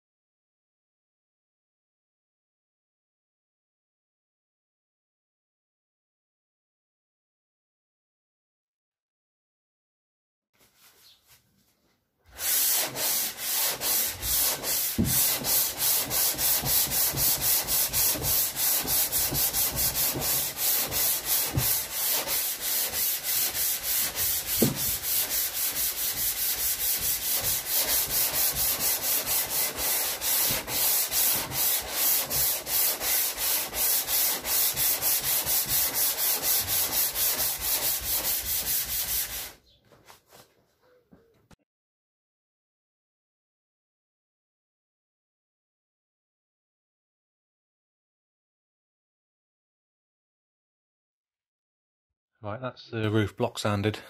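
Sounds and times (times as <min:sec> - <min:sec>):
sandpaper rubbing on steel: 0:12.4 - 0:39.6.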